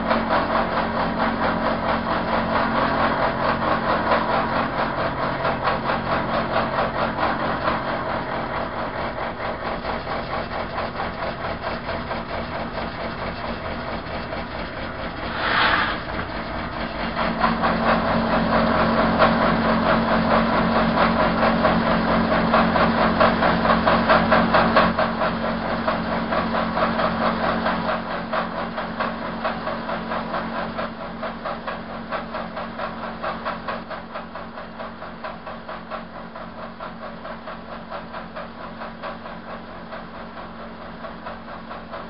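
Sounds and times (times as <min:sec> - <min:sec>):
milling machine motor running: 0:00.1 - 0:19.7
brief hiss: 0:15.2 - 0:16.4.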